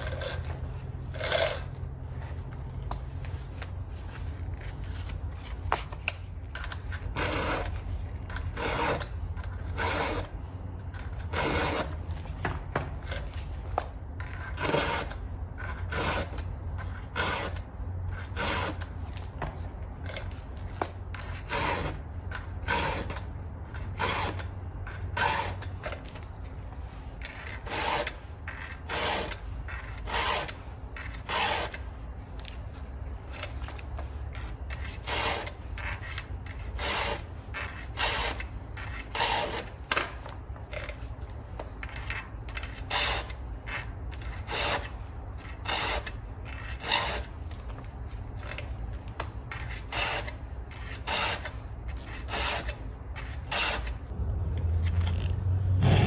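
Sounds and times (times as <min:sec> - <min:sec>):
file rasping on saw chain: 0:06.6 - 0:10.3, 0:11.0 - 0:12.0, 0:14.2 - 0:18.9, 0:21.1 - 0:26.0, 0:27.2 - 0:31.8, 0:34.7 - 0:39.7, 0:42.6 - 0:47.3, 0:49.5 - 0:54.0.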